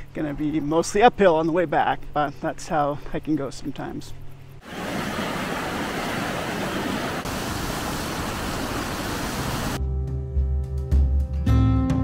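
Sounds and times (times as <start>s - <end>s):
stream rushing over rocks: 4.6s - 9.8s.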